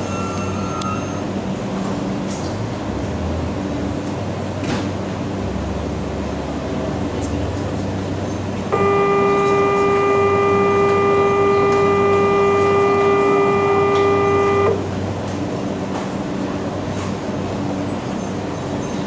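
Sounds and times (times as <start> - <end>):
departure buzzer tone: 8.7 - 15.0.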